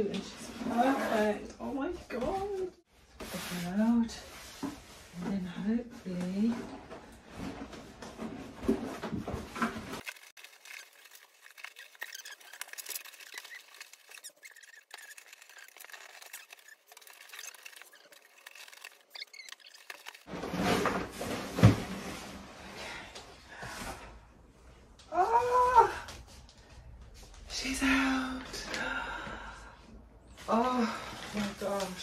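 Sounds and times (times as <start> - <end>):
paper and cardboard rustling: 6.4 - 22.4, 30.4 - 32.0.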